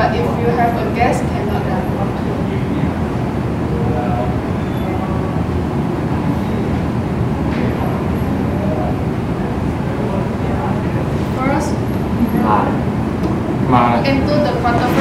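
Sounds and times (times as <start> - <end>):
background rumble and hiss: 0.0 - 15.0.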